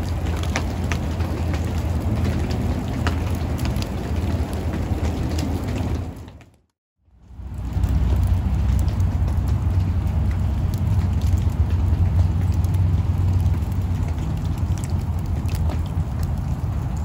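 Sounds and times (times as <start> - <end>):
wet snow ticking on ground: 0.0 - 6.6, 7.2 - 17.0
low rumble: 7.0 - 17.0.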